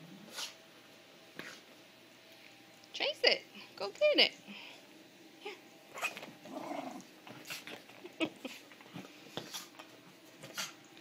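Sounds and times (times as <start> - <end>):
puppy growling: 5.9 - 7.8.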